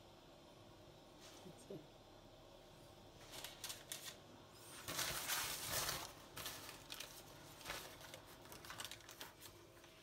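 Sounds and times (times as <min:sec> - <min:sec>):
baking paper rustling and crinkling: 0:03.1 - 0:10.0.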